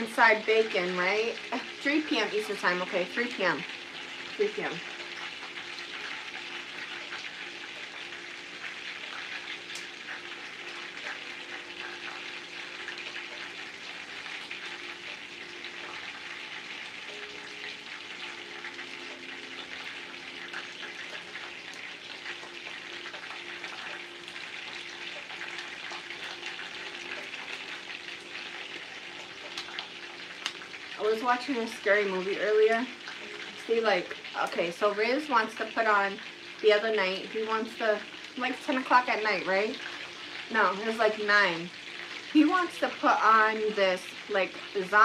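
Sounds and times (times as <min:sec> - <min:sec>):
chicken sizzling in oil: 0:00.0 - 0:45.0.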